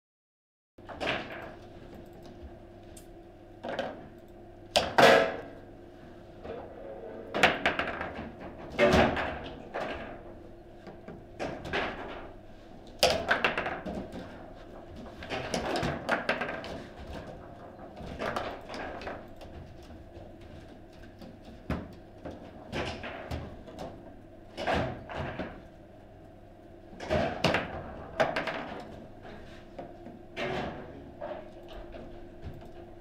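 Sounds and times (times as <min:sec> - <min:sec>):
table football knocks and clacks: 0:07.4 - 0:10.0, 0:13.0 - 0:14.4, 0:15.1 - 0:17.4, 0:27.0 - 0:28.9.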